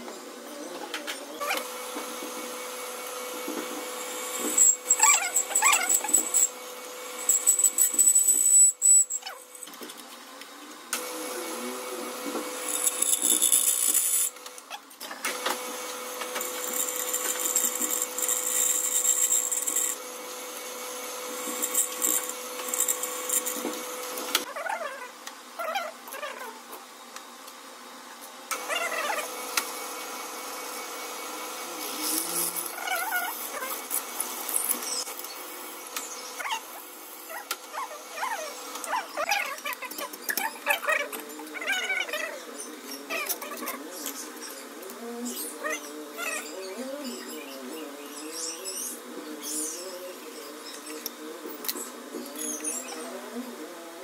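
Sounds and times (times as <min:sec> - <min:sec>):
drill press motor humming: 0:15.3 - 0:24.5.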